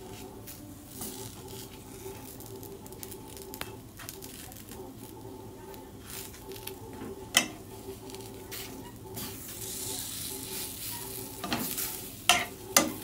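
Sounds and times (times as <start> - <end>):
crepe sizzling in a frying pan: 0.0 - 13.0
steady low hum: 0.0 - 13.0
spatula scraping a pan: 6.0 - 13.0.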